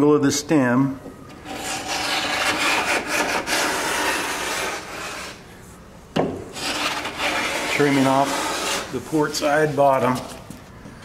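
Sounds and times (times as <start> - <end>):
block plane scraping wood: 1.3 - 5.4, 6.5 - 10.2.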